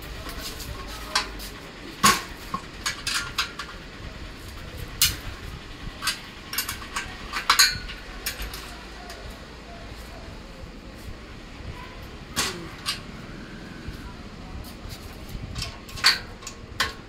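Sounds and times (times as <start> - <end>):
metallic clinks and knocks: 6.0 - 9.2.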